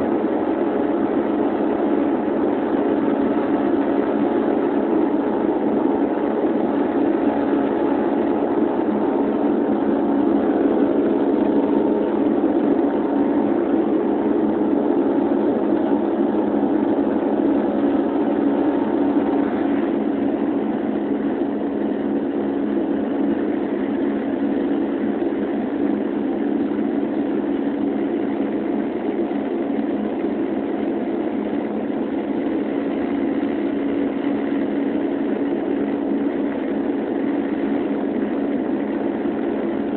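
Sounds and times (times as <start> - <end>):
turboprop cabin drone: 0.0 - 39.9.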